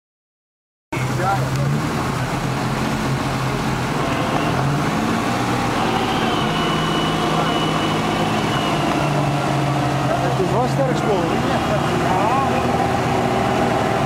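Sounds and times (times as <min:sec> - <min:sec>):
truck engines running at low revs: 0:01.0 - 0:14.0
thin high whine: 0:05.7 - 0:09.3.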